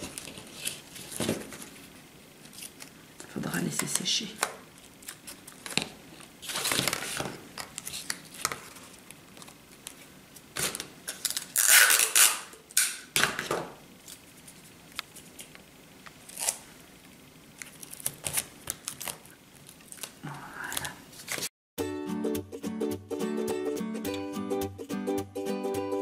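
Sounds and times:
cardboard rustling and scraping: 0.0s - 2.8s, 4.8s - 10.8s.

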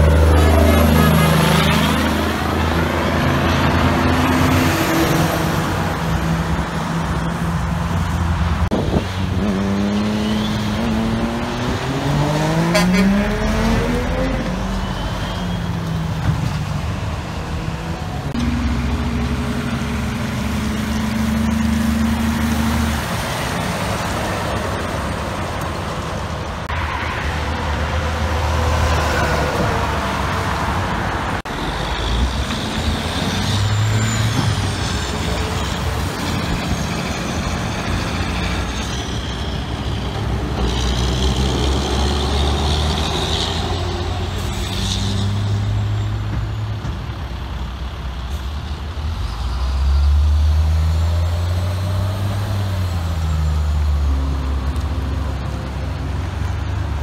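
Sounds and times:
diesel truck engines pulling away: 0.0s - 57.0s.

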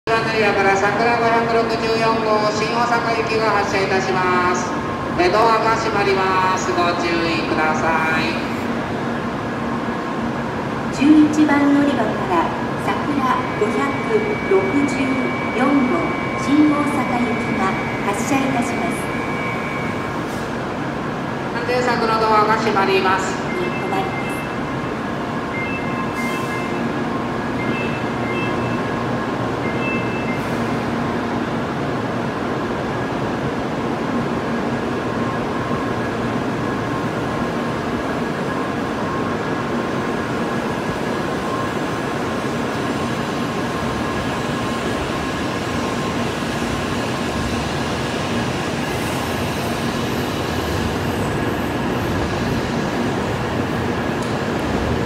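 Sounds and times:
train running noise with whine: 0.1s - 55.0s
platform door beeps: 12.5s - 20.6s, 23.1s - 31.5s.

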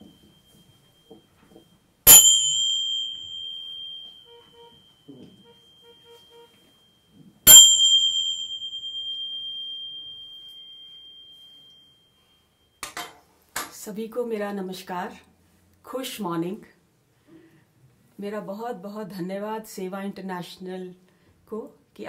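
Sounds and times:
small hand cymbals ringing: 2.0s - 13.0s.

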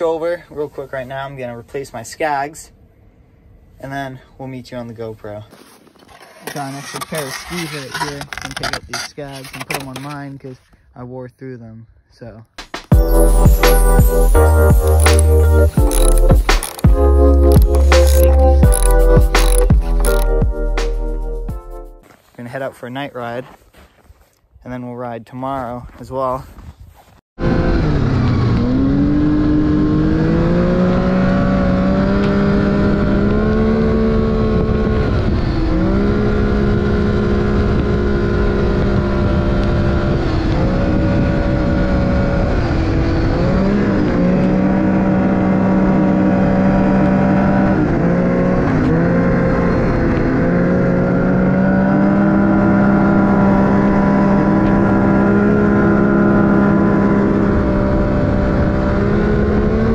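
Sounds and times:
snowmobile engine running: 6.0s - 10.2s, 12.9s - 20.4s.

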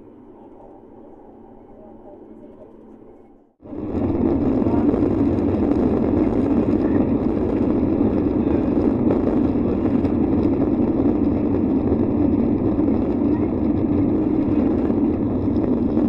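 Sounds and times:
runway rumble: 0.0s - 16.0s
jet engines at takeoff: 3.6s - 16.0s.

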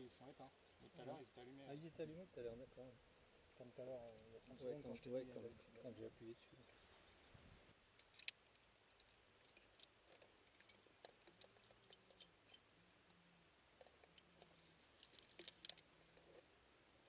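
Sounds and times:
climbing gear clicking: 8.0s - 12.6s, 13.8s - 16.4s.

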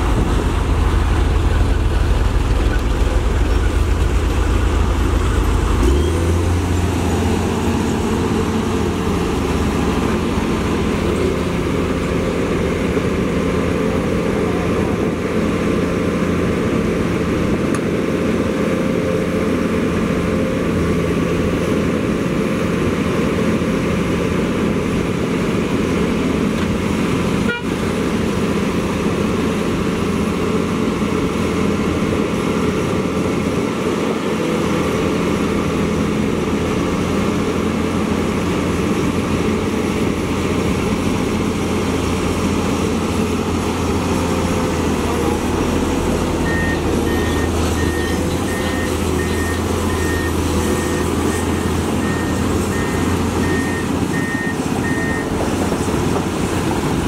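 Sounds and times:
diesel engine running: 0.0s - 57.0s.

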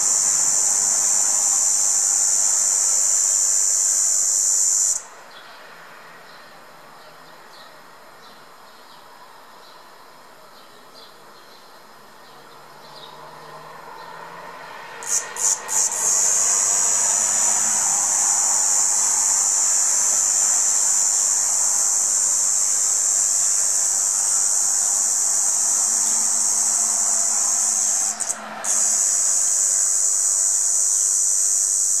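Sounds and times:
cicada buzzing: 0.0s - 5.4s, 12.9s - 32.0s.

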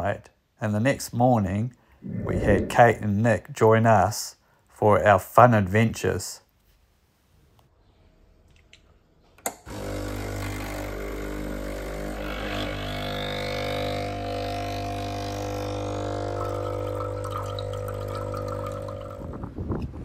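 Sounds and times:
low even hum: 2.0s - 3.0s
water running: 16.1s - 19.2s.

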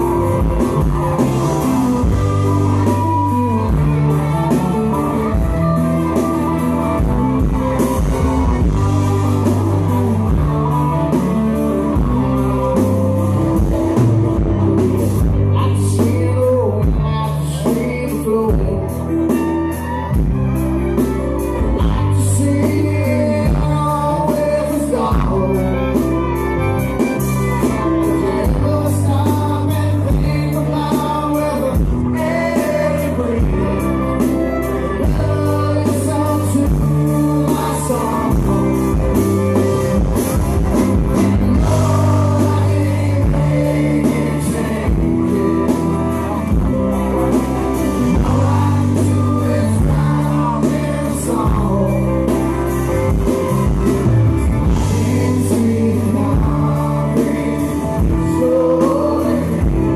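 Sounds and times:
person singing lead vocal: 0.0s - 59.9s
rock band playing: 0.0s - 59.9s.

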